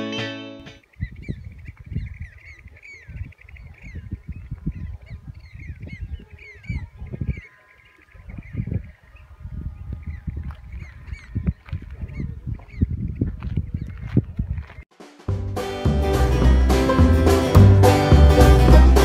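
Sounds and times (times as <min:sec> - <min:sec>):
waterbirds calling: 0:00.7 - 0:14.8
wind rumbling on microphone: 0:00.9 - 0:14.9.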